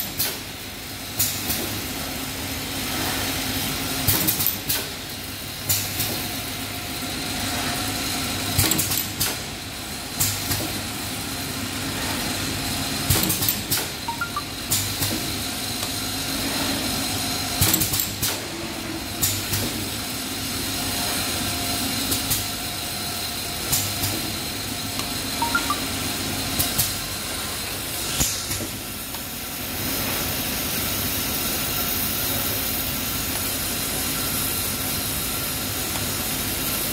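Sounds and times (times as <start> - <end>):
bottling machine running: 2.8 - 27.6.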